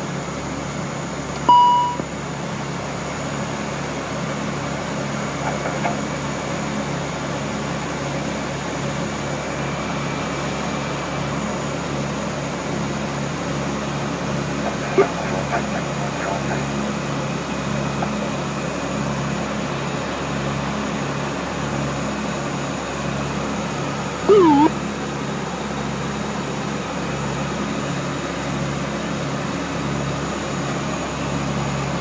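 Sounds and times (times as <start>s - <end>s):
turboprop engines droning: 0.0s - 32.0s
short electronic beep: 1.4s - 2.1s.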